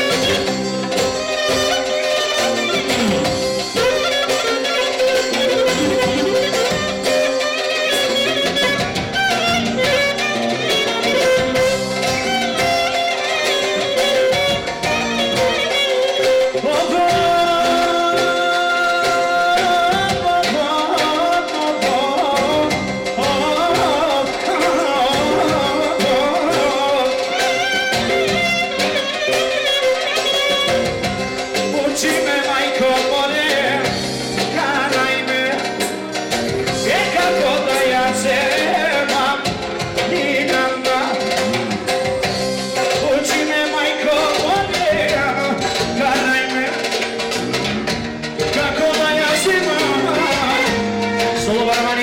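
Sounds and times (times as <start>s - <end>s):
clarinet playing ornamented melody: 0.0s - 52.0s
drums: 0.0s - 52.0s
keyboard: 0.0s - 52.0s
live band dance music: 0.0s - 52.0s.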